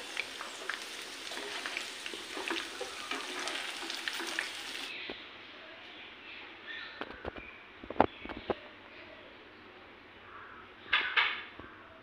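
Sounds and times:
chicken sizzling in oil: 0.0s - 5.0s
spatula stirring: 0.6s - 4.9s.

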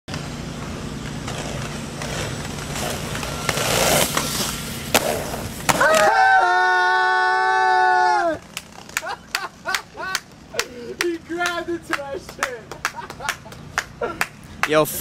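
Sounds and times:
inline skate wheels rolling on pavement: 0.1s - 15.0s.

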